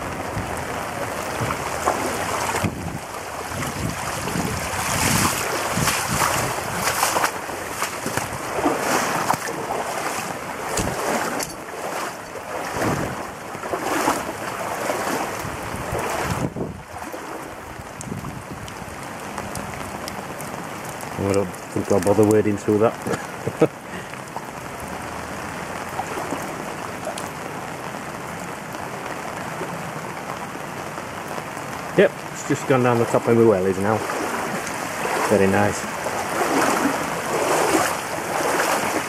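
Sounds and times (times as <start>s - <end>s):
wind buffeting microphone: 0.0s - 20.0s
floodwater flowing: 0.0s - 39.0s
rain: 0.0s - 39.0s.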